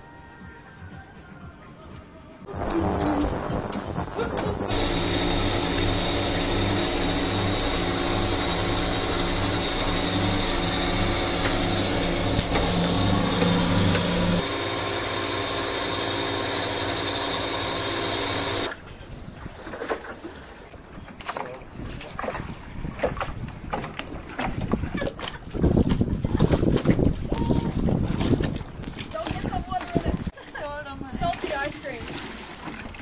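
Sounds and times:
ice cream maker motor whirring: 2.5s - 18.7s.

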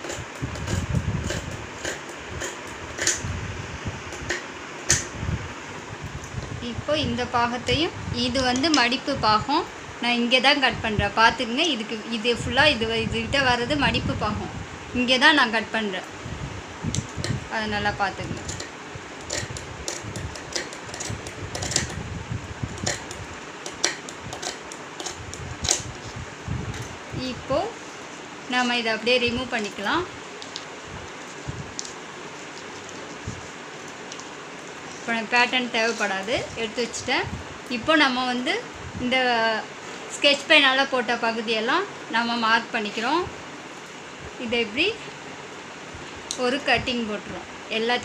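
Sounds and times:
scissors cutting paper and cloth: 0.0s - 3.3s, 18.2s - 22.0s, 22.8s - 26.2s, 30.4s - 36.7s
scissors snipping cloth: 0.0s - 3.3s, 22.8s - 26.1s.

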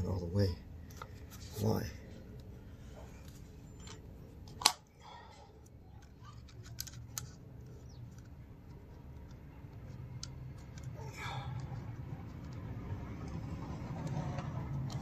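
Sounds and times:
plastic housing clicks and knocks: 6.0s - 11.0s.

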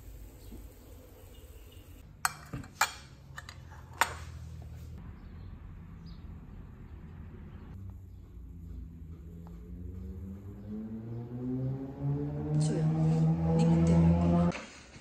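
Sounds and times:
metal spoon clinking on ceramic plate: 2.2s - 4.2s.

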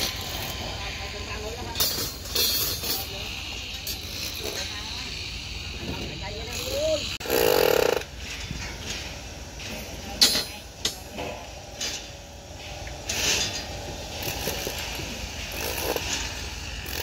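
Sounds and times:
power tool on concrete: 0.0s - 8.2s, 13.0s - 17.0s.

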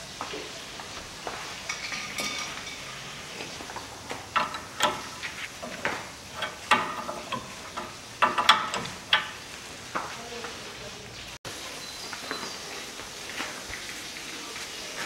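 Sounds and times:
wrench clicking and clanking on metal: 1.7s - 3.1s, 3.9s - 9.5s.

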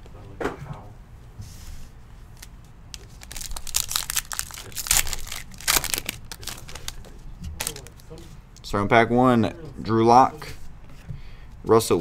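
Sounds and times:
foil wrapper crinkling and tearing: 2.4s - 8.1s.

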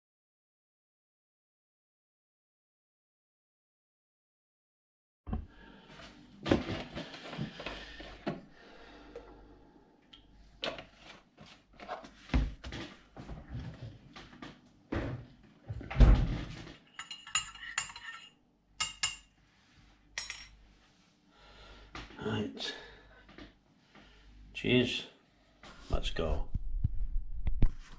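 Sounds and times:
cutlery and crockery clinking: 16.9s - 19.3s, 20.2s - 20.6s.

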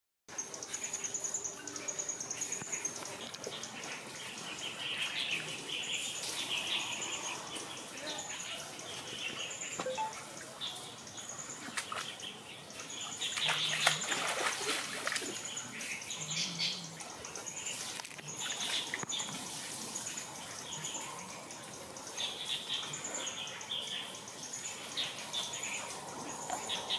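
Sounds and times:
small birds chirping: 0.3s - 26.9s.

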